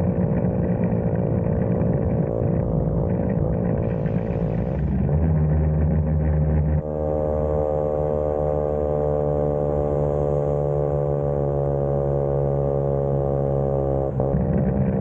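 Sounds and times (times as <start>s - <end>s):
scooter engine running: 0.0s - 9.8s, 14.2s - 15.0s.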